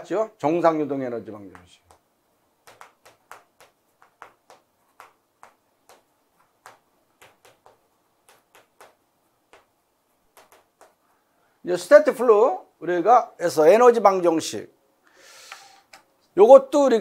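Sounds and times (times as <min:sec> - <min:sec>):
chalk tapping and scraping on blackboard: 0:01.4 - 0:11.0.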